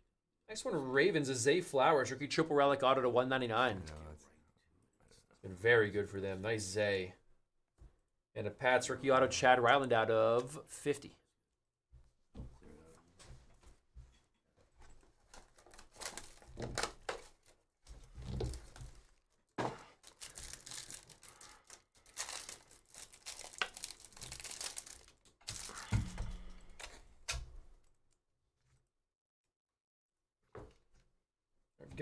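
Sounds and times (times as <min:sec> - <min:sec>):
card pack wrapper tearing: 0:15.4 - 0:17.6, 0:19.9 - 0:27.4.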